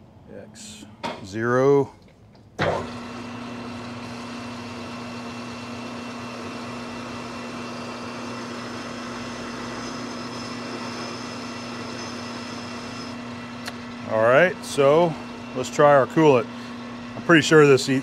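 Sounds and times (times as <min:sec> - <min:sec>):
metal lathe humming: 0:02.6 - 0:18.0
high-pitched cutting whine: 0:03.8 - 0:18.0.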